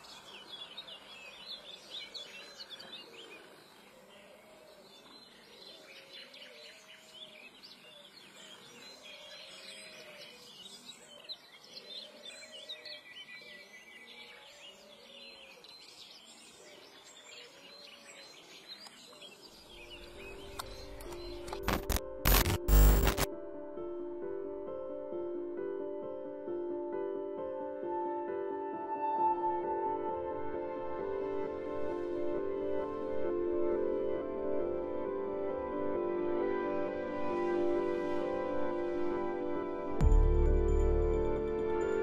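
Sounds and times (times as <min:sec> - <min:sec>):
birds chirping and trilling: 0:00.0 - 0:22.0.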